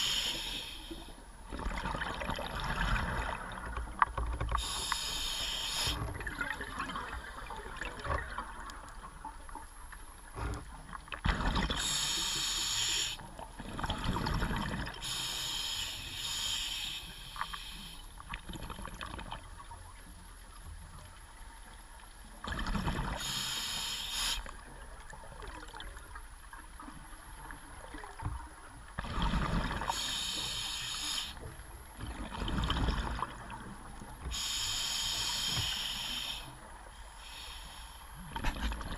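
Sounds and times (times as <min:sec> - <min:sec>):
regulator hiss on inhalation: 0:00.0 - 0:01.1, 0:04.6 - 0:06.0, 0:11.8 - 0:13.2, 0:15.0 - 0:18.1, 0:23.2 - 0:24.5, 0:29.9 - 0:31.4, 0:34.3 - 0:38.2
exhaled air bubbling: 0:01.4 - 0:09.4, 0:13.0 - 0:15.2.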